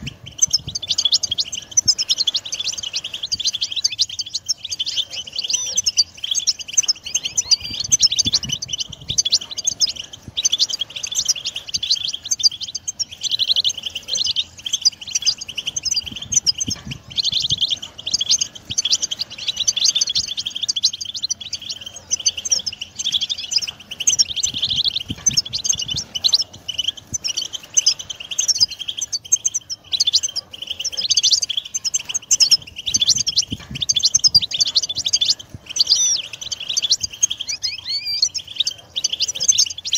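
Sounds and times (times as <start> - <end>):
finch twittering song: 0.0 - 39.9.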